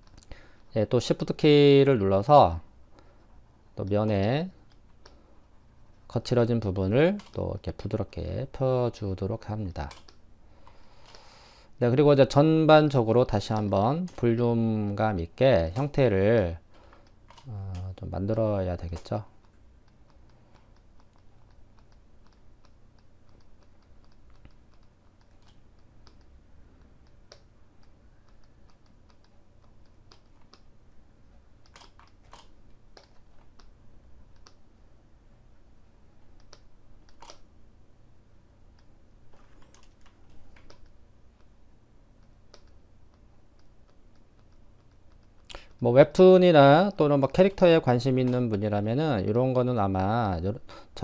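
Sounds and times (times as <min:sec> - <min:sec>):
low steady hum: 0:00.0 - 0:51.0
computer keys clicking: 0:07.1 - 0:07.5, 0:09.8 - 0:11.2, 0:12.8 - 0:15.0, 0:16.8 - 0:30.7, 0:31.6 - 0:34.6, 0:36.3 - 0:37.5, 0:38.7 - 0:41.5, 0:42.2 - 0:45.8.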